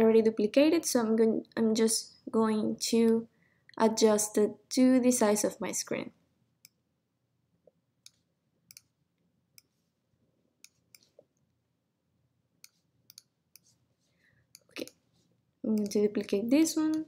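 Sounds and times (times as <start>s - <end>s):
computer mouse clicks: 8.0s - 8.9s, 10.6s - 11.3s, 12.6s - 13.8s, 14.5s - 15.0s, 15.7s - 17.0s.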